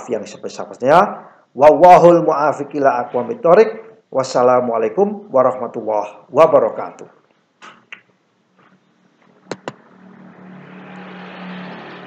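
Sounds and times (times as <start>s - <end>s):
motor vehicle passing: 9.2s - 12.0s.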